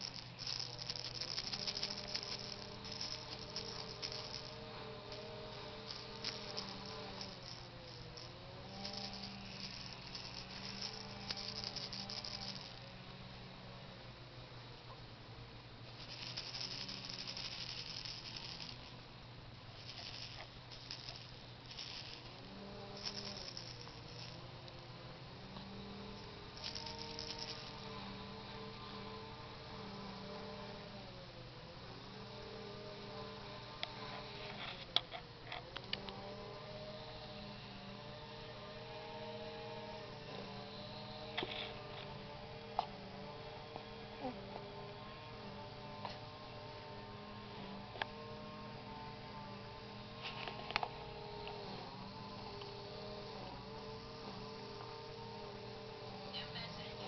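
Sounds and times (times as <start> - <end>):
plastic baby rattle shaking: 0.0 - 4.6, 5.8 - 12.8, 15.9 - 18.9, 19.8 - 24.4, 26.2 - 27.8
hum of held tones: 0.0 - 57.0.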